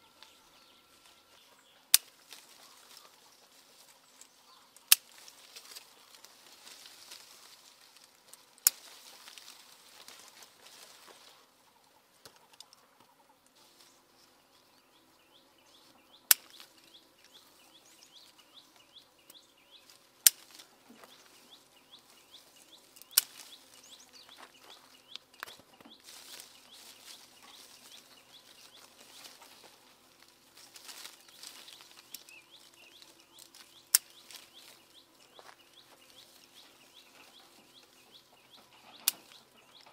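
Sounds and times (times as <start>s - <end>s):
leaves rustling: 0.0s - 12.8s, 13.6s - 39.9s
birds chirping: 0.0s - 39.9s
scissors snipping stems: 1.9s - 2.7s, 4.8s - 5.4s, 8.3s - 9.4s, 16.3s - 16.7s, 20.2s - 20.7s, 23.0s - 23.6s, 33.4s - 34.5s.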